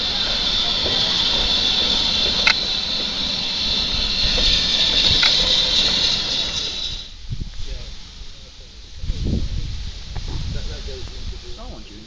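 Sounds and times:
steam hissing: 0:00.0 - 0:12.0.

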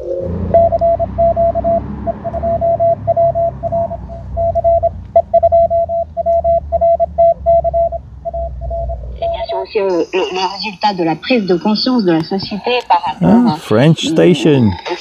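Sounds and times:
morse code tone: 0:00.0 - 0:10.6
radio band noise: 0:09.2 - 0:15.0.

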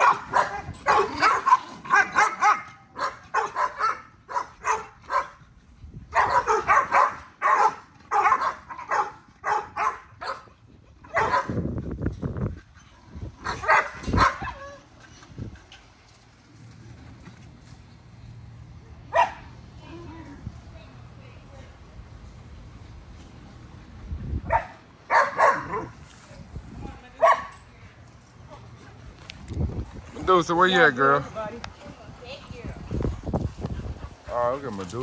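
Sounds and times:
dogs barking and yipping: 0:00.0 - 0:05.5, 0:06.1 - 0:11.8, 0:13.3 - 0:15.2, 0:19.1 - 0:19.6, 0:24.4 - 0:26.0.

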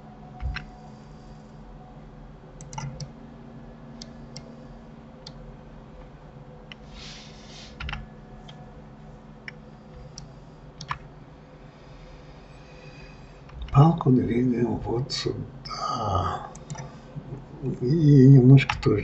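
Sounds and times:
low steady hum: 0:00.0 - 0:19.0
keyboard and mouse clicks: 0:00.4 - 0:00.7, 0:02.6 - 0:03.2, 0:07.7 - 0:08.6, 0:09.5 - 0:11.1, 0:16.5 - 0:17.4, 0:18.6 - 0:18.9
brief hiss: 0:06.9 - 0:07.8.

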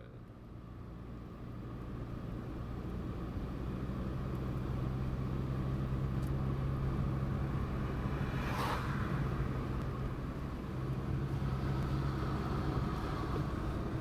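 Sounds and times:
car engine drone: 0:00.0 - 0:14.0
road noise: 0:00.0 - 0:14.0
car passing: 0:05.1 - 0:14.0.

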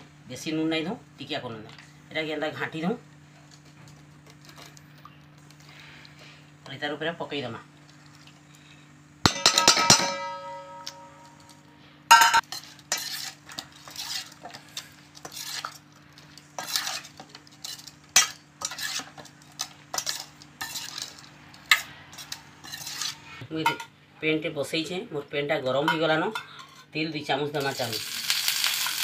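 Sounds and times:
steady low hum: 0:00.0 - 0:25.1
spoon knocking on steel bowl: 0:09.3 - 0:11.3, 0:12.1 - 0:12.4
spoon stirring and scraping bowl: 0:12.1 - 0:23.4.

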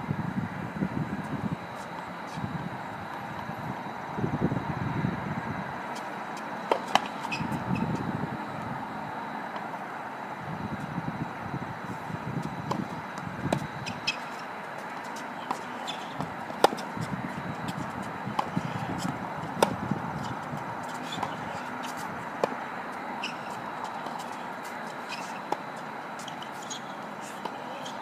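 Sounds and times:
thin high hum: 0:00.0 - 0:28.0
tennis balls knocking: 0:15.4 - 0:17.0.

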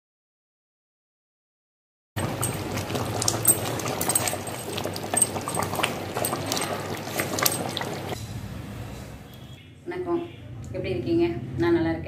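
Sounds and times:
gravy bubbling in a pot: 0:02.2 - 0:08.2.

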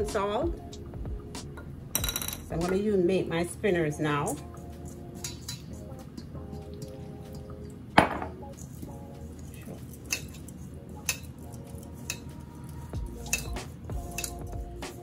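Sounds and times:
metal bowl clinking: 0:01.9 - 0:02.8, 0:04.2 - 0:14.5
loud knock on bowl: 0:08.0 - 0:08.4
hands mixing dough in bowl: 0:08.5 - 0:15.0.

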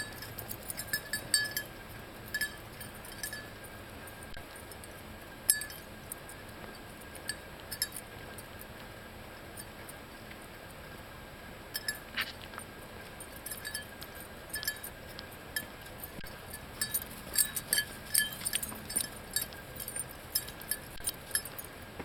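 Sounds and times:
metallic jingling and clinking: 0:00.0 - 0:08.8, 0:11.7 - 0:22.0.

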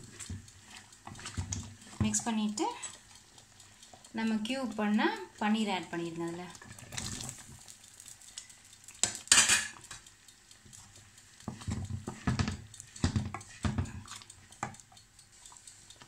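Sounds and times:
wooden spatula stirring thick gravy: 0:00.0 - 0:10.0, 0:10.6 - 0:16.0
steel plate clattering on a pan: 0:09.0 - 0:09.8.

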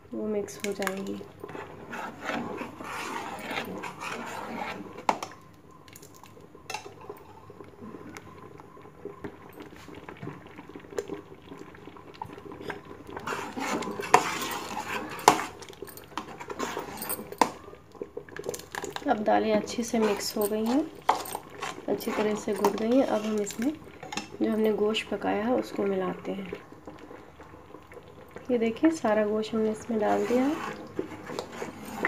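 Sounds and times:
ladle scraping a steel pot: 0:01.4 - 0:05.3, 0:13.1 - 0:17.6, 0:19.7 - 0:24.3, 0:29.8 - 0:32.0.

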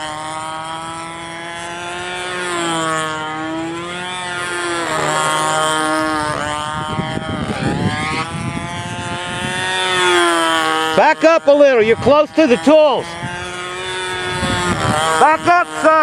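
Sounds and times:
model airplane engine whining: 0:00.0 - 0:16.0
wind gusts on microphone: 0:05.4 - 0:11.2, 0:13.0 - 0:15.8.

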